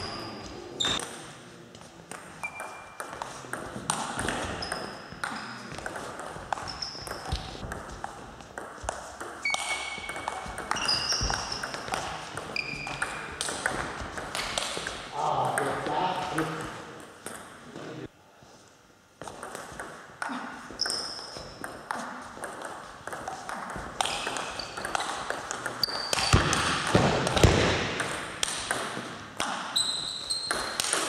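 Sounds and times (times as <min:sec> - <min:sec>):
shoes squeaking on floor: 0:00.0 - 0:01.0, 0:02.4 - 0:03.0, 0:04.4 - 0:07.6, 0:09.4 - 0:13.4, 0:24.1 - 0:25.2, 0:25.8 - 0:26.4, 0:29.7 - 0:30.8.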